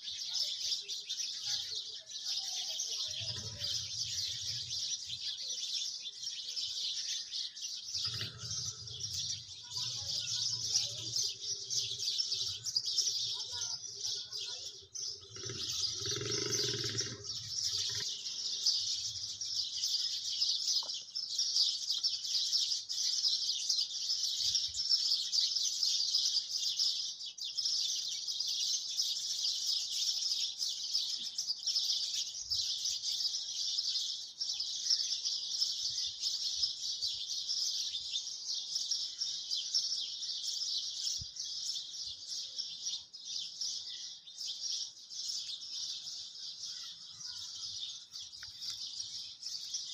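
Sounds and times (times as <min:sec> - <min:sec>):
high-pitched chirping chorus: 0:00.0 - 0:25.5.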